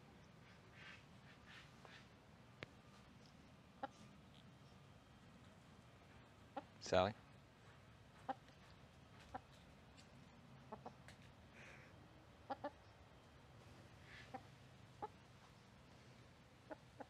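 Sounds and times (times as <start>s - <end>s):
hen clucking softly: 3.8s - 4.1s, 8.2s - 8.5s, 9.2s - 9.6s, 10.6s - 11.2s, 12.4s - 12.9s, 14.0s - 15.6s, 16.6s - 17.0s.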